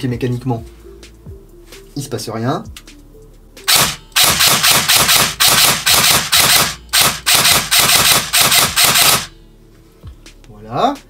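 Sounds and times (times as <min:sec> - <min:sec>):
airsoft rifle firing bursts: 0:03.7 - 0:09.3.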